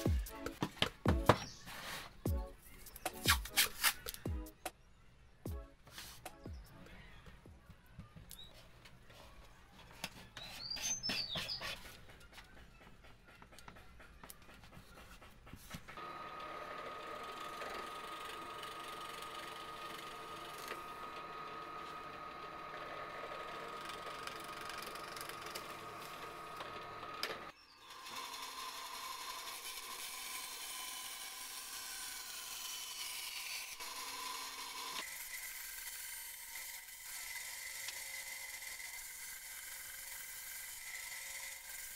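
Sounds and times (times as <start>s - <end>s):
scroll saw cutting wood: 0.0s - 4.4s, 10.0s - 41.9s
drill press boring wood: 16.0s - 41.9s.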